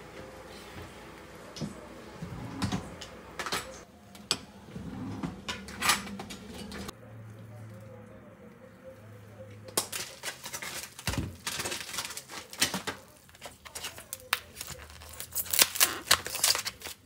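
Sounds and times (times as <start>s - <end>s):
objects knocking and clattering: 9.7s - 14.0s.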